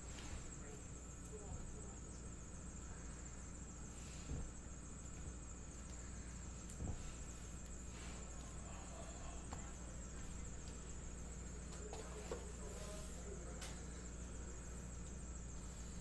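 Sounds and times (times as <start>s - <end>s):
high-pitched hiss: 0.0s - 16.0s.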